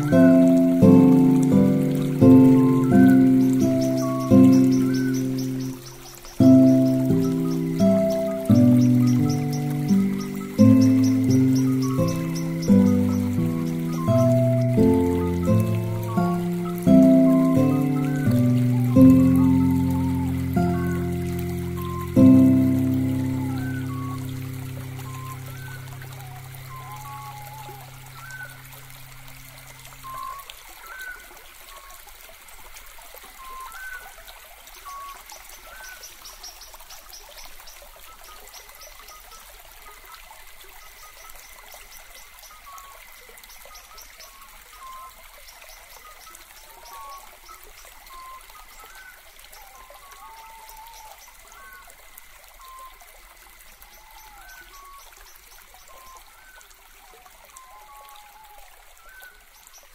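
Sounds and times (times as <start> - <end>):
held music chord: 0.0 - 5.8, 6.4 - 27.9
small birds chirping: 0.0 - 28.7
stream trickling: 0.0 - 59.9.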